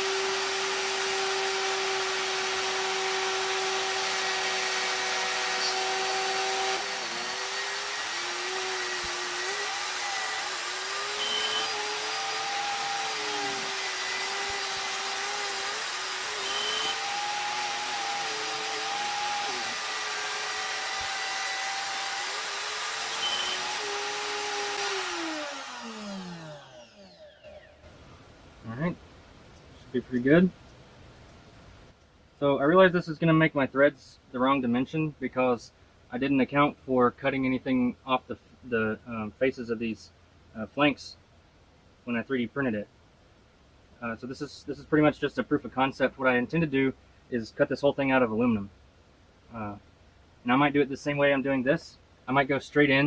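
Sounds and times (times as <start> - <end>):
metal lathe motor whine: 0.0 - 27.8.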